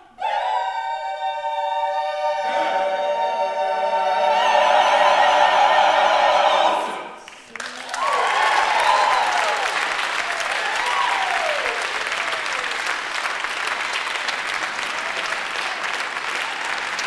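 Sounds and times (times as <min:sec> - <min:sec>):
audience applauding: 0:07.2 - 0:17.0
voices cheering: 0:07.6 - 0:17.0.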